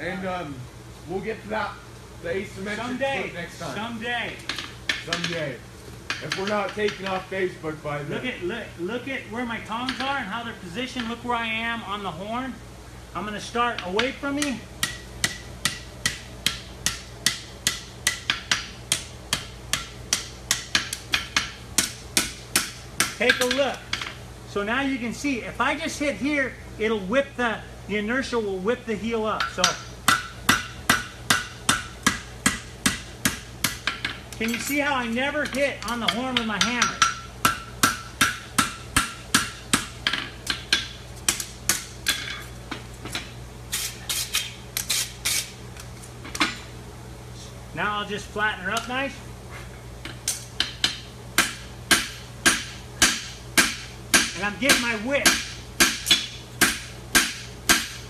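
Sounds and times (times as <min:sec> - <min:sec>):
hammer striking horseshoe on anvil: 0:13.8 - 0:24.2, 0:29.4 - 0:43.3, 0:50.0 - 0:58.0
hammer ringing on anvil: 0:35.4 - 0:40.9.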